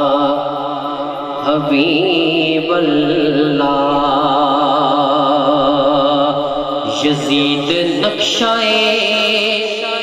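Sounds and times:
man singing into a microphone: 0.0s - 10.0s.

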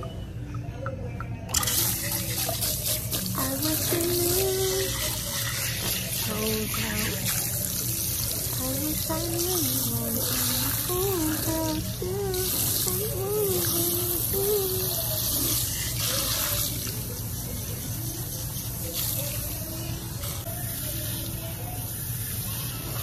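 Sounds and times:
water spraying onto hair: 1.5s - 23.0s
person humming: 9.0s - 15.5s.

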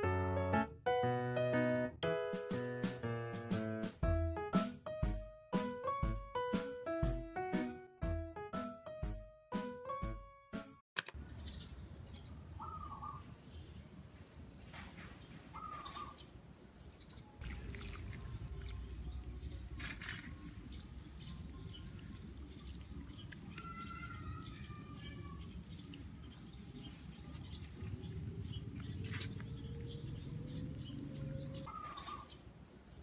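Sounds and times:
bird chirping: 11.2s - 13.8s, 18.1s - 32.5s
watering can sprinkling onto soil: 17.4s - 31.6s.

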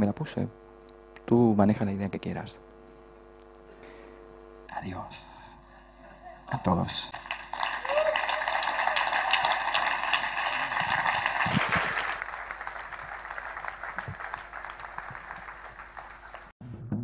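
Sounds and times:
audience applauding: 7.0s - 16.6s.

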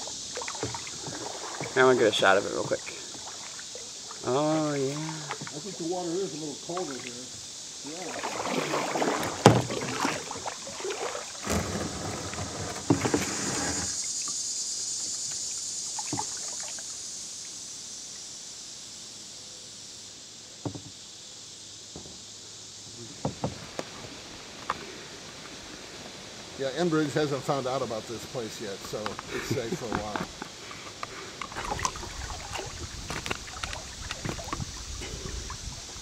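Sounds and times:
water flowing over gravel: 0.0s - 14.4s, 25.3s - 36.0s
water splashing: 0.0s - 14.4s, 15.0s - 17.0s, 28.9s - 36.0s
kayak knocks: 0.3s - 4.4s, 5.3s - 6.0s, 8.1s - 14.0s, 20.6s - 21.0s, 21.9s - 22.2s, 23.1s - 24.0s, 29.0s - 36.0s.

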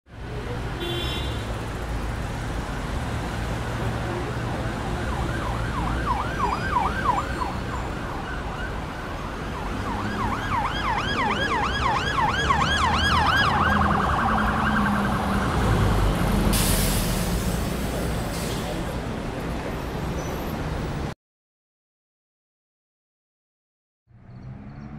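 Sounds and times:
city street traffic rumble: 0.1s - 21.2s, 24.1s - 24.9s
emergency vehicle siren yelping: 4.6s - 16.1s
short hiss: 16.5s - 17.5s.

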